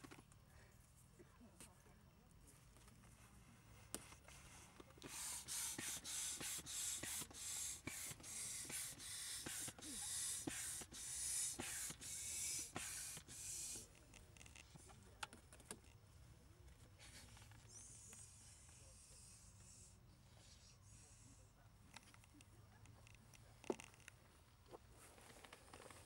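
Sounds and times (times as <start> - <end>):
air pump hissing: 4.3 - 14.9.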